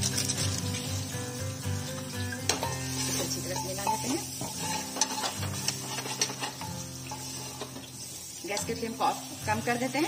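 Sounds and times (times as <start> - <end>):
frying sizzle: 0.0 - 10.0
soft background music: 0.0 - 10.0
spatula scraping pot: 2.5 - 8.0.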